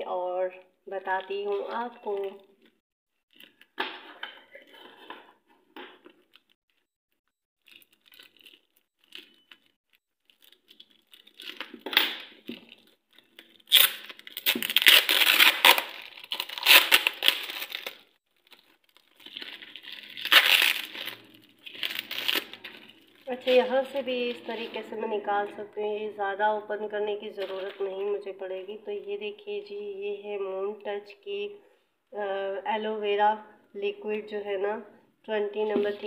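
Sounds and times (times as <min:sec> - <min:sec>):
bubble wrap crinkling and tearing: 0:07.6 - 0:24.8.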